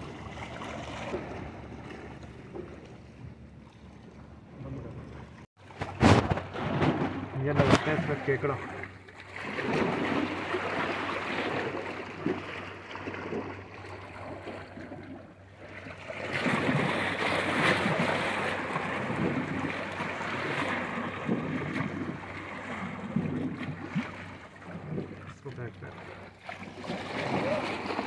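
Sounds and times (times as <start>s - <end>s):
sea waves washing on shore: 15.6s - 28.0s.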